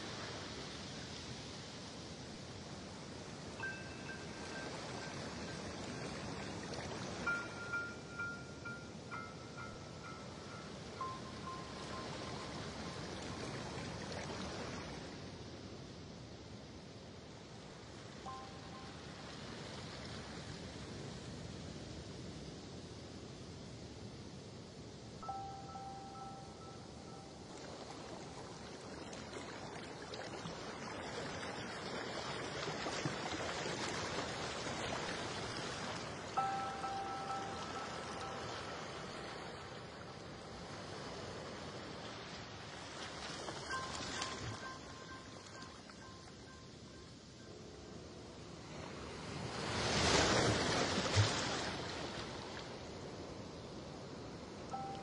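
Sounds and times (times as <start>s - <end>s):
chime-like background music: 3.6s - 6.2s, 7.1s - 13.5s, 18.3s - 19.1s, 25.2s - 27.5s, 36.4s - 39.5s, 43.6s - 47.6s, 54.7s - 55.0s.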